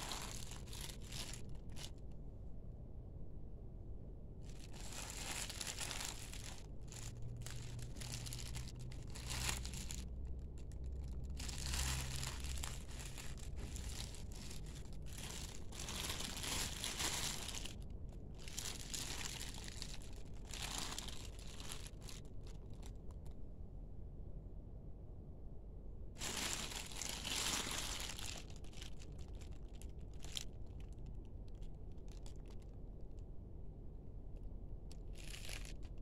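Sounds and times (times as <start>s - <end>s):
plastic wrapping crinkling: 0.0s - 2.1s, 4.4s - 23.3s, 26.2s - 32.8s, 34.9s - 36.0s.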